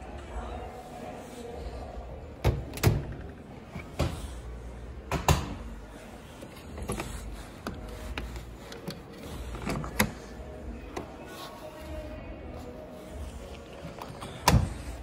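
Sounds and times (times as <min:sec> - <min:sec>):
detergent drawer opening and closing: 0:06.4 - 0:11.0, 0:13.8 - 0:15.0.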